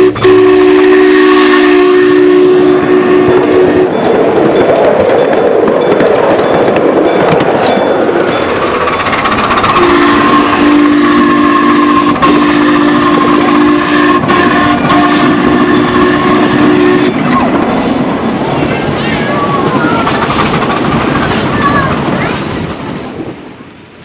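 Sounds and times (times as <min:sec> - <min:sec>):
steam locomotive whistle: 0:00.0 - 0:04.0, 0:09.6 - 0:18.0
riding cars rattling along track: 0:02.5 - 0:24.0.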